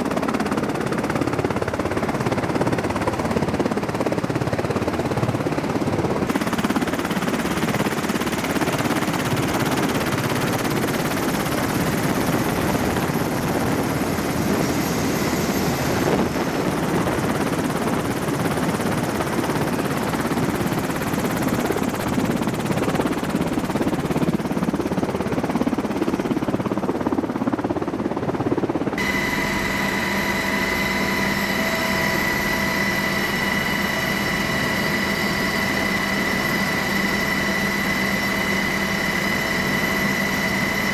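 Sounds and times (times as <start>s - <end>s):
helicopter rotor and engine: 0.0s - 40.9s
whine with held tones: 29.0s - 40.9s.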